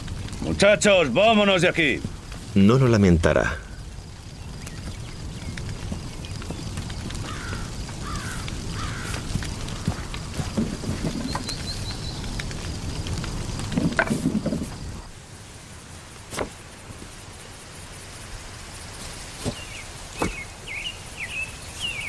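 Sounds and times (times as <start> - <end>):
bird calling and twittering: 11.0 - 12.3, 19.4 - 22.0.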